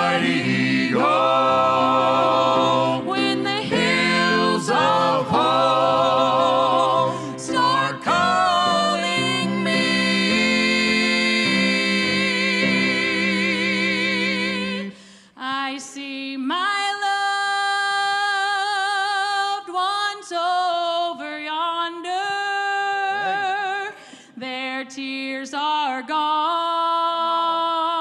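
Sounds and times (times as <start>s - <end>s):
piano: 0.0s - 15.0s
voices singing in harmony: 0.0s - 15.0s.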